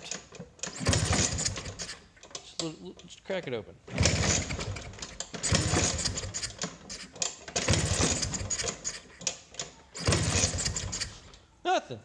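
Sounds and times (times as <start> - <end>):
scooter engine kick start turning over: 0.6 - 2.0, 3.9 - 11.3.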